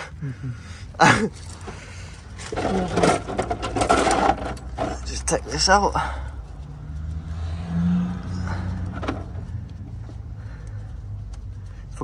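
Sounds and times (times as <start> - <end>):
engine running at low revs: 4.4 - 12.0.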